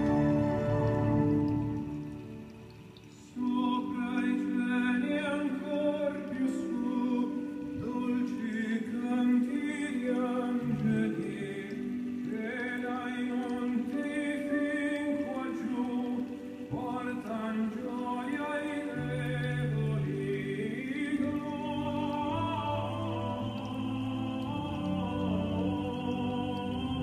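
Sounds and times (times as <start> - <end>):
choir singing: 0.0 - 1.8, 21.5 - 27.0.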